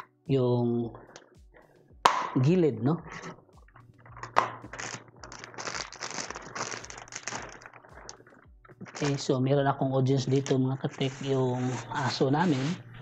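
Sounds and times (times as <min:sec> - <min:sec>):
plastic packaging crinkling: 0:04.0 - 0:09.4.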